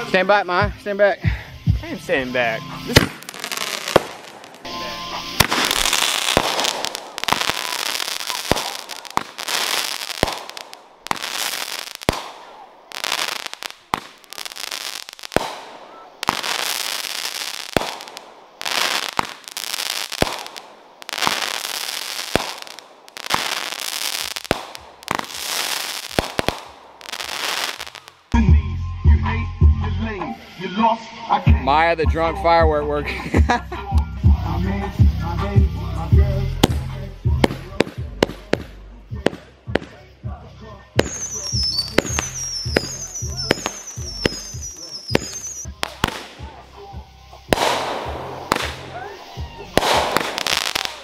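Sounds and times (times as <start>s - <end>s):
firework launch pops: 2.9s - 4.7s, 5.4s - 14.2s, 15.3s - 19.5s, 20.1s - 28.1s, 41.0s - 46.6s, 47.5s - 51.0s
firework shell bursts: 2.9s - 4.7s, 5.3s - 28.3s, 41.0s - 46.6s, 47.5s - 51.0s
music with heavy bass beat: 28.4s - 30.4s, 31.5s - 44.7s, 45.8s - 50.7s.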